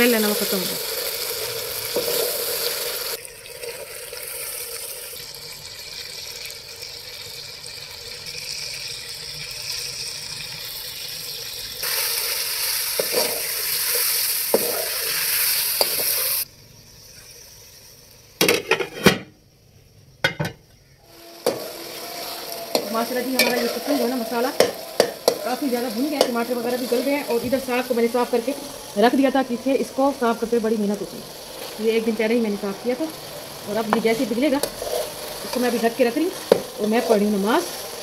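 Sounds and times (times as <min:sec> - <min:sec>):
chicken sizzling in hot oil: 0:00.0 - 0:18.8, 0:20.8 - 0:38.0
metal spoon stirring pot: 0:21.4 - 0:28.5.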